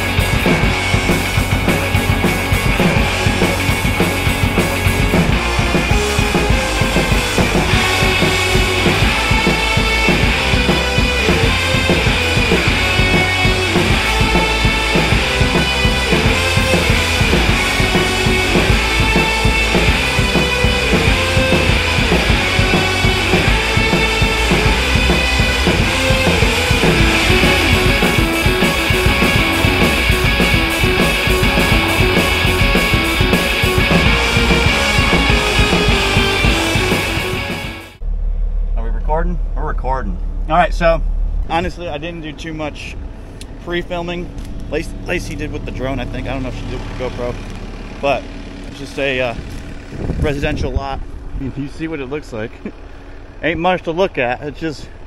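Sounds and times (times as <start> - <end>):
rock music with drums and guitar: 0.0 - 38.0.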